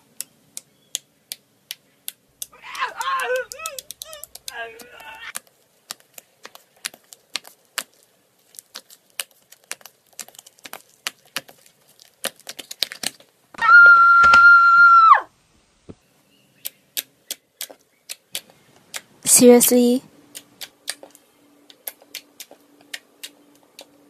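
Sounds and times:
fingers clicking in slime: 0.2s - 13.2s, 16.6s - 19.1s, 20.3s - 24.0s.

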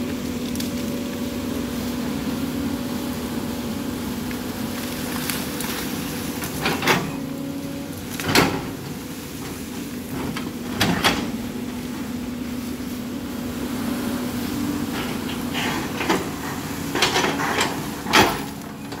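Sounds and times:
excavator engine running: 0.0s - 19.0s.

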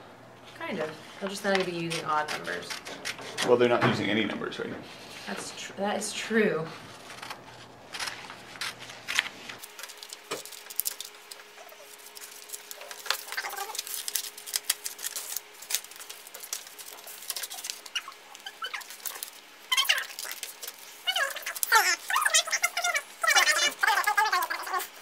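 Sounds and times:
scissors snipping paper: 1.2s - 3.6s, 6.9s - 25.0s
paper rustling on wooden desk: 6.7s - 24.9s.

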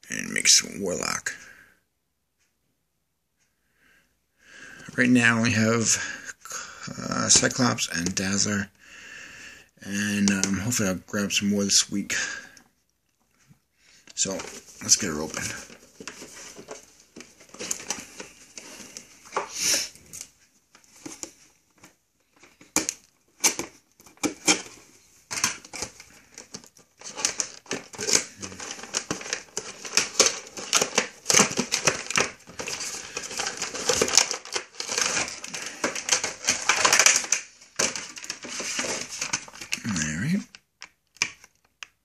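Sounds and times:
plastic crinkling and rustling: 9.9s - 12.6s, 13.2s - 42.0s
packaging clicks and scrapes: 14.1s - 40.0s.

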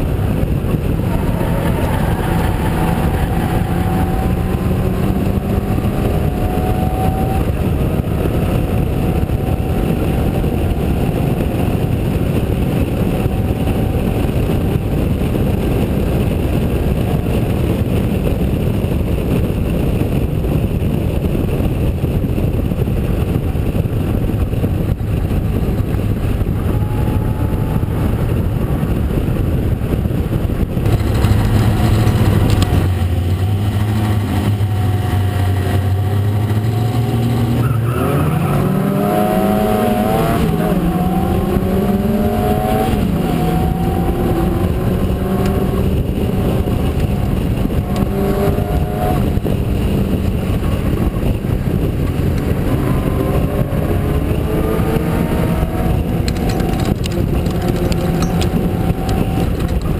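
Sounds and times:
racing car engine revving: 0.0s - 14.6s, 30.8s - 59.9s
other racing car engines: 0.0s - 59.9s.

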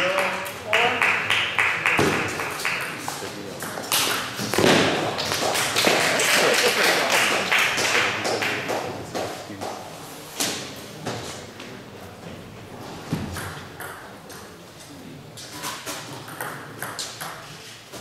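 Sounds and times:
table tennis balls tapping: 1.9s - 6.2s, 13.2s - 14.6s, 15.9s - 18.0s.

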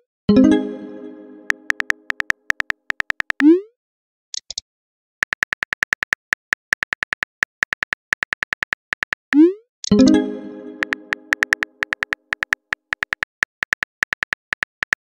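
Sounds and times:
keyboard typing clicks: 1.4s - 3.5s, 5.2s - 15.0s.

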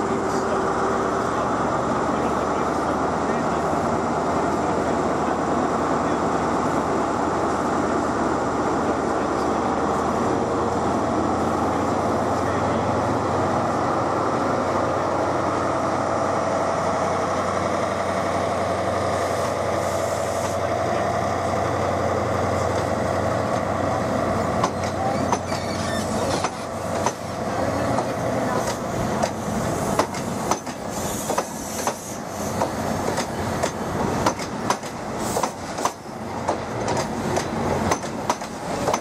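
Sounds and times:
diesel train engine whine: 0.0s - 39.0s
train wheels clicking over rail joints: 22.5s - 39.0s.

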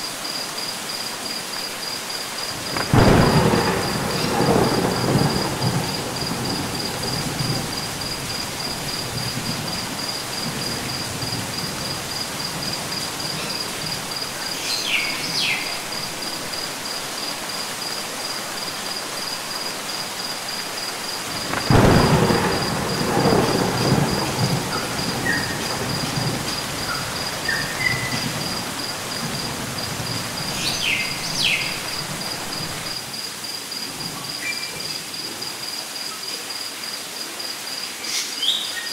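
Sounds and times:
light rain: 0.0s - 38.9s
thunder rumbling: 2.5s - 33.0s.

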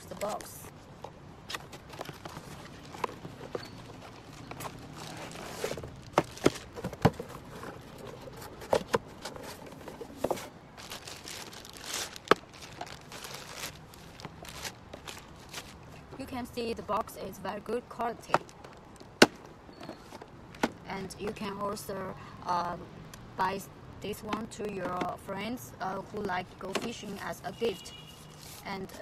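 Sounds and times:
cardboard box rustling and scraping: 1.5s - 15.8s
plastic bag crinkling: 1.6s - 8.5s, 10.7s - 15.9s.

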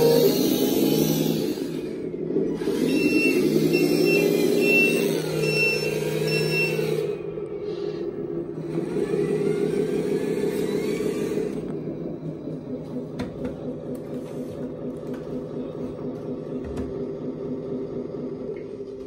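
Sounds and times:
faint rising whine: 0.0s - 13.1s
simulated diesel engine running: 0.0s - 19.0s
high reversing alarm beeps: 2.8s - 7.2s.

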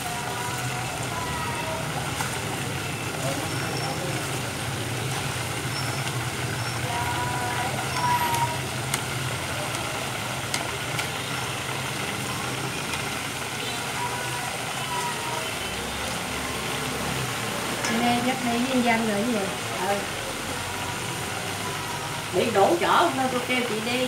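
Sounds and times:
chicken deep-frying in oil: 0.0s - 24.0s
chopsticks clicking: 8.0s - 9.1s, 10.5s - 11.1s.

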